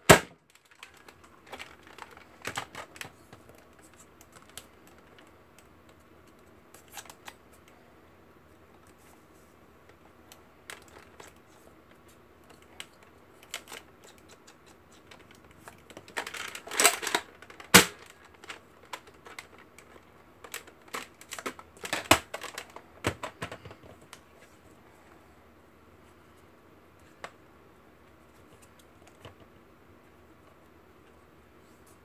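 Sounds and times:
plastic clicks and knocks: 15.1 - 24.0
loud sharp snap: 17.8 - 18.0.

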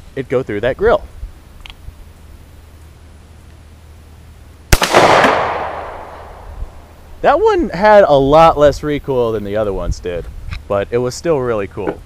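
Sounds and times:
pistol shot with echo: 4.7 - 6.9.

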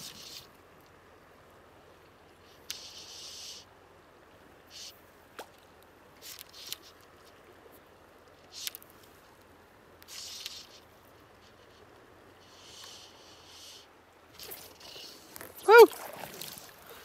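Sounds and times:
fly line hissing through guides: 0.0 - 0.5, 2.5 - 3.7, 10.1 - 10.8, 11.4 - 16.8
faint stream: 0.0 - 17.0.

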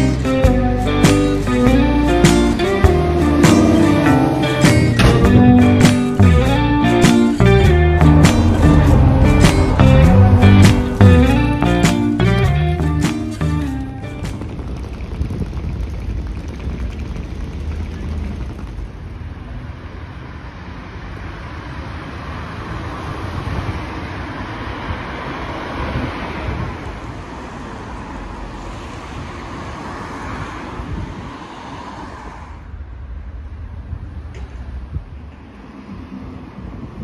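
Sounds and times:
vehicle rumble with hiss: 0.0 - 37.0.

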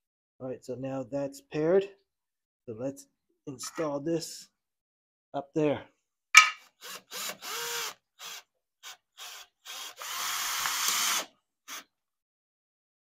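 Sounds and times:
cordless drill driving screws: 6.8 - 11.9.

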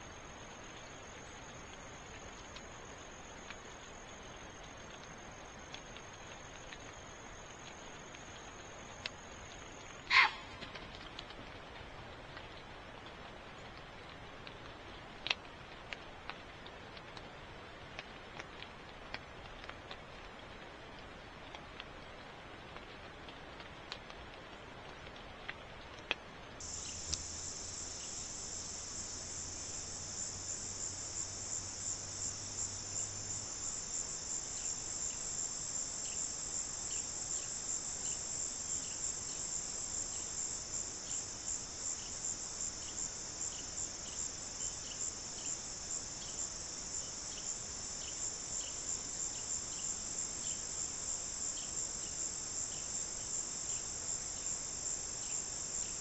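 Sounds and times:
soft insect chirps: 0.0 - 10.6, 26.6 - 56.0
insects trilling: 0.0 - 10.8, 26.6 - 56.0.

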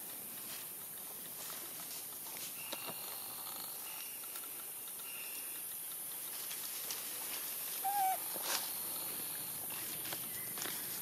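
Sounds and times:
monkey squeak: 7.8 - 8.2.

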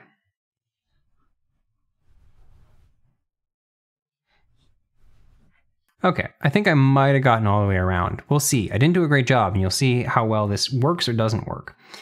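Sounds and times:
faint soft rustles: 0.9 - 3.2, 4.3 - 5.8.

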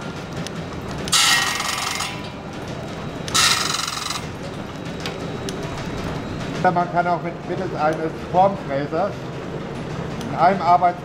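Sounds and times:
clatter of line-shaft machinery: 0.0 - 11.0
high ringing metal cutting: 1.1 - 2.4, 3.2 - 4.4.

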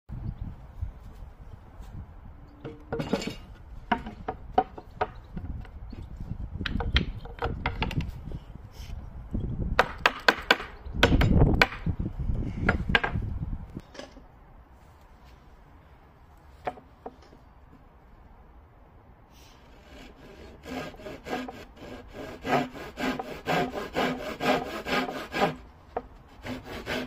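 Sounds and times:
wooden knocks and clunks: 2.6 - 8.1, 12.6 - 13.2, 16.6 - 17.4.

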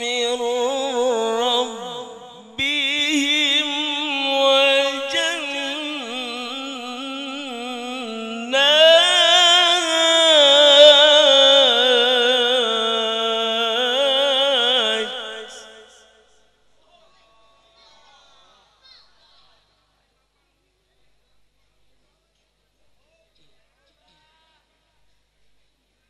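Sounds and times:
man reciting melodically into microphone: 0.0 - 16.2.

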